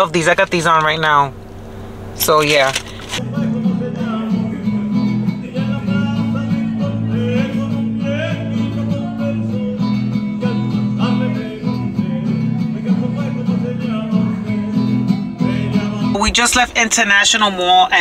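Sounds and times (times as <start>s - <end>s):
low bass notes: 0.0s - 16.3s
amplified acoustic guitar: 0.0s - 18.0s.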